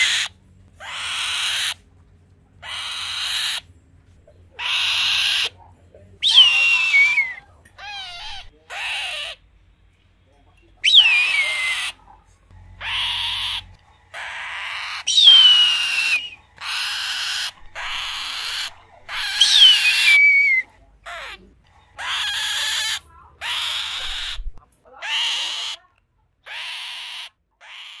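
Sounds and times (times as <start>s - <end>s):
eagle screaming: 0.0s - 1.8s, 6.2s - 9.4s, 10.8s - 12.0s, 12.8s - 21.4s.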